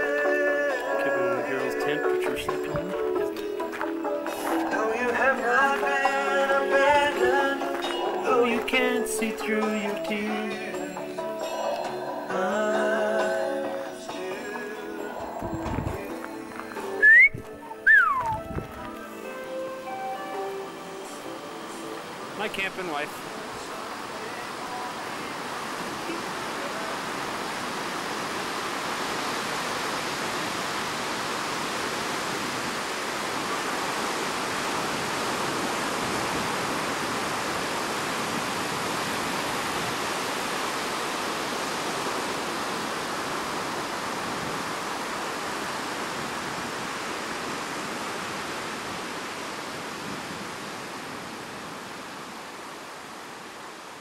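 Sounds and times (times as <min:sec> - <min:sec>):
ocean surf breaking on beach: 0:18.0 - 0:54.0.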